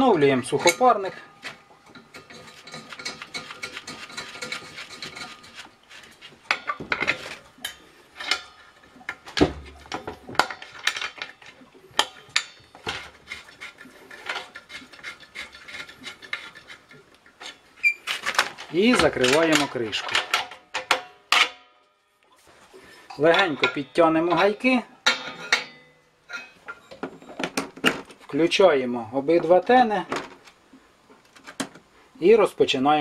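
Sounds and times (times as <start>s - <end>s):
metal pipe fittings clinking: 0.0s - 5.6s, 6.4s - 21.7s, 23.0s - 27.6s.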